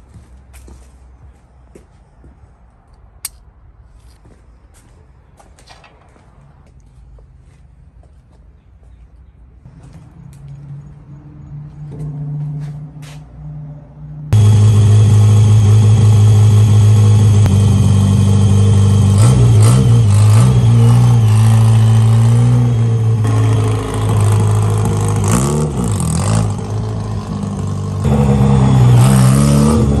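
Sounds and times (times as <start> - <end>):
car engine revving: 14.3 - 30.0.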